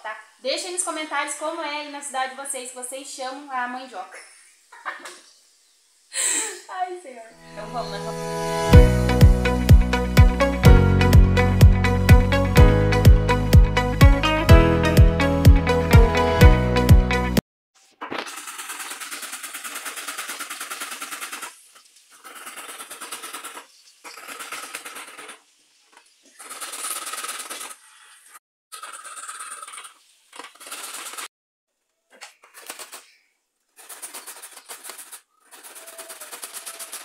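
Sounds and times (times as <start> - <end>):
root rasping on metal grater: 22.2 - 25.4.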